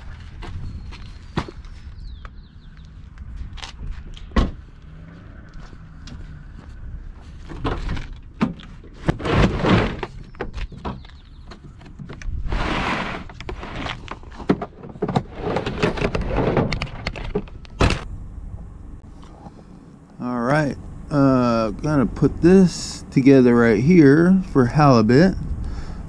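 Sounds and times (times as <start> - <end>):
tailgate clunking and knocking: 4.3 - 4.6, 14.2 - 18.1
cover scraping: 9.0 - 10.2, 12.4 - 17.5.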